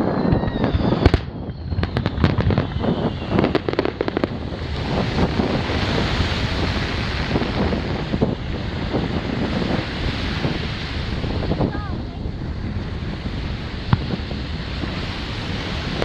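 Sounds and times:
falling firework whistle: 0.0s - 8.2s
fireworks cracking and banging: 0.0s - 16.0s
steady rushing noise: 0.0s - 16.0s.

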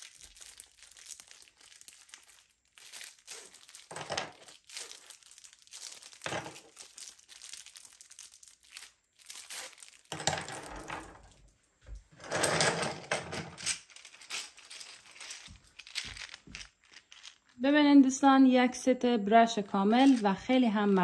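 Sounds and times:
plastic packaging crinkling: 0.0s - 11.5s, 13.7s - 17.6s, 19.9s - 21.0s.

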